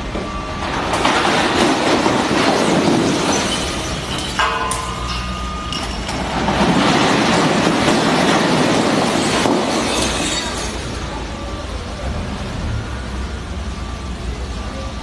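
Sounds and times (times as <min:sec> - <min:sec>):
crates clattering on concrete: 0:00.8 - 0:10.8
glass bottles smashing: 0:01.1 - 0:11.1.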